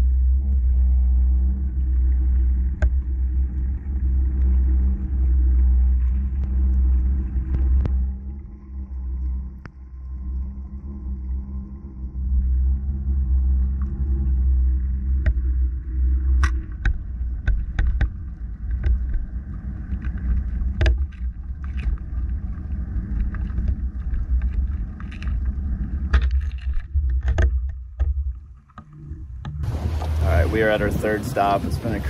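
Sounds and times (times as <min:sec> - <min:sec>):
low hum: 0:00.0 - 0:32.0
underwater rumble: 0:00.0 - 0:32.0
sharp clicks and knocks: 0:16.4 - 0:19.2, 0:20.7 - 0:22.0, 0:26.0 - 0:29.6.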